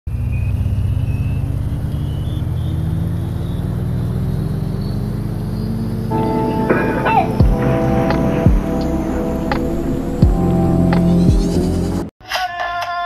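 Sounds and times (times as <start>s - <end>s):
faint high whine rising: 6.1s - 11.9s
steady low drone: 6.1s - 12.1s.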